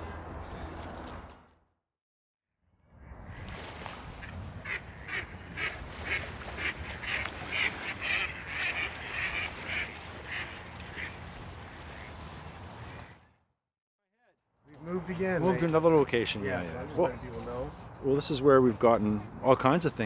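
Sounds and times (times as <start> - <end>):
waterfowl calling: 4.2 - 13.3.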